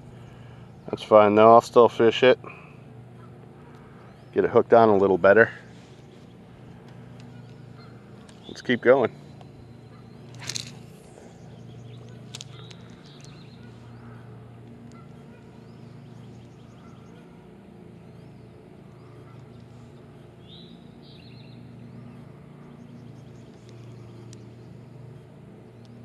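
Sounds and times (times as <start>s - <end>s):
distant engine hum: 0.0s - 26.0s
faint bird chirps: 5.5s - 26.0s
light clicks: 23.4s - 24.5s.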